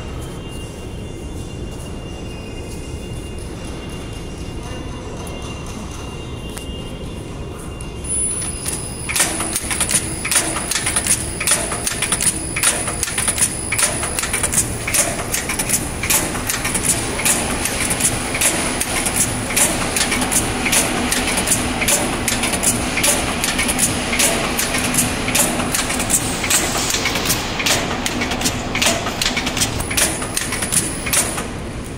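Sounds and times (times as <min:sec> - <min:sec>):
machine rhythmic clacking: 0:08.0 - 0:31.9.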